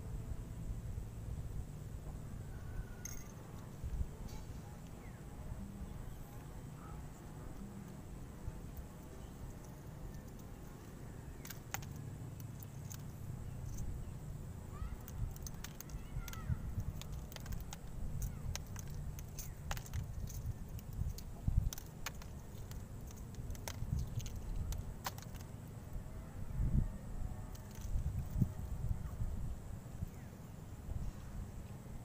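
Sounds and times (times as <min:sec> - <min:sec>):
wind rumbling on microphone: 0:00.0 - 0:32.0.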